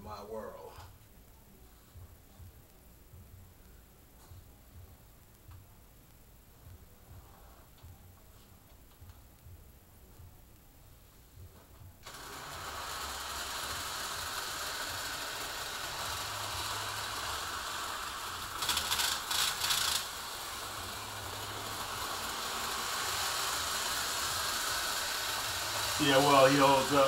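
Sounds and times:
model train rattling on track: 12.1 - 27.0.

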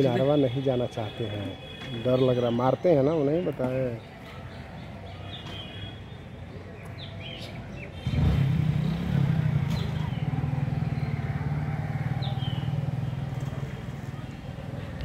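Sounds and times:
bird chirps: 3.6 - 8.2
motor engine droning: 8.0 - 15.0.

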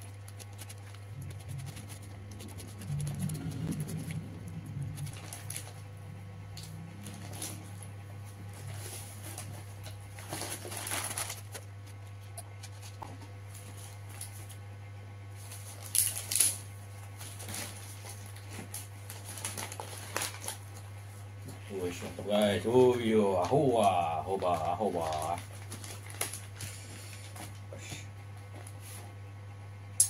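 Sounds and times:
chewing and mouth noises: 0.0 - 5.7
paper wrappers crinkling: 0.0 - 5.8, 8.6 - 13.0, 15.4 - 20.9, 21.8 - 27.6
steady low hum: 0.0 - 30.0.

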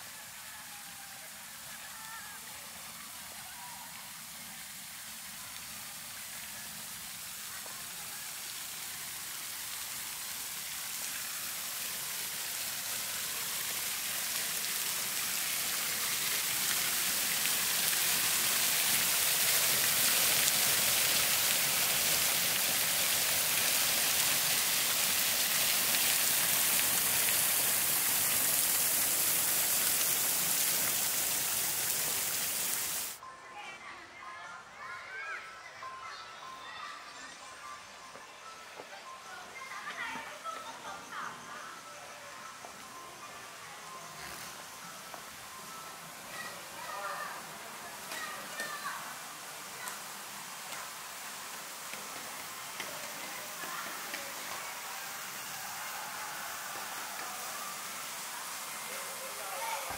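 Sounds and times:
falling water rushing: 0.0 - 33.2, 42.5 - 59.9.

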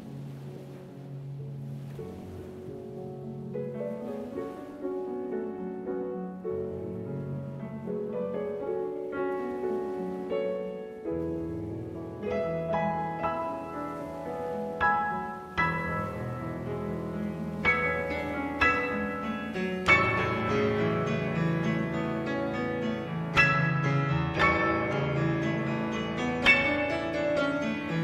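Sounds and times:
slow piano music: 0.0 - 28.0.

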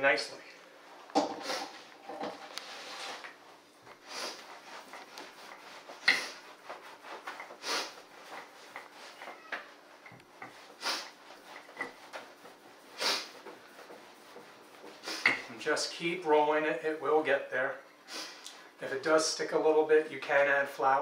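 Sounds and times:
rolling pin swishing on dough: 1.2 - 17.3.

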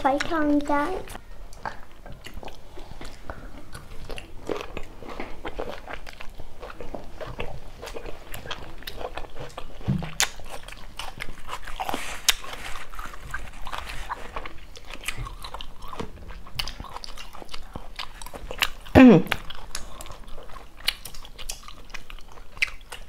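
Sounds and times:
chewing and biting food: 1.5 - 23.0.

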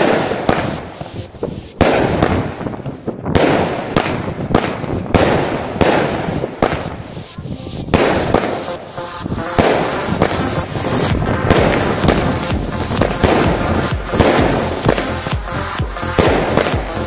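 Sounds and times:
continuous rushing noise: 0.0 - 17.0
firework bangs: 0.0 - 17.0.

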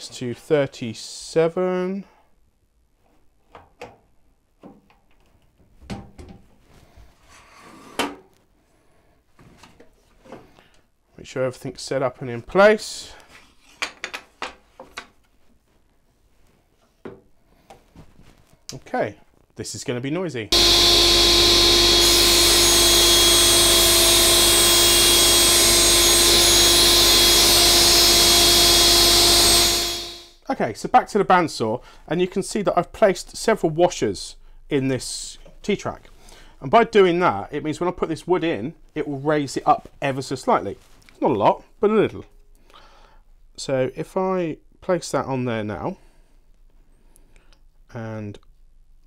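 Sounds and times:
table saw ripping a board: 20.5 - 30.4.

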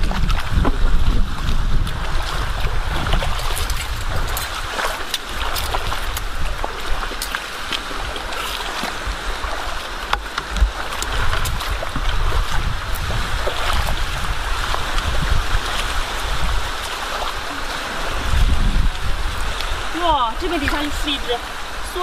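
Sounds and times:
shallow seawater rushing: 0.0 - 22.0
wind buffeting microphone: 0.0 - 22.0.

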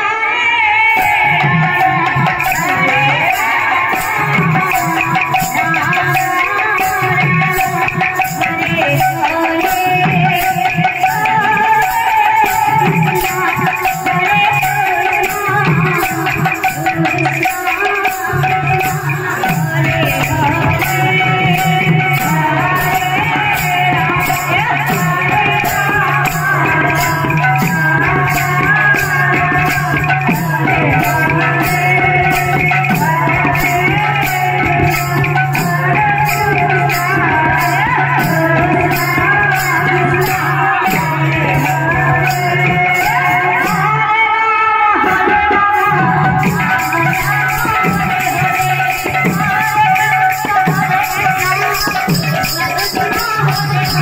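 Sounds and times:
devotional singing with instruments: 0.0 - 54.0
drum beat: 45.9 - 54.0.

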